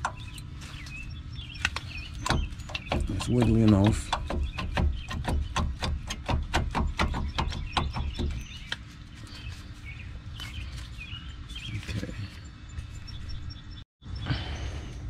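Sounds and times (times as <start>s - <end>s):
brake caliper clicking and rattling: 1.6s - 7.2s.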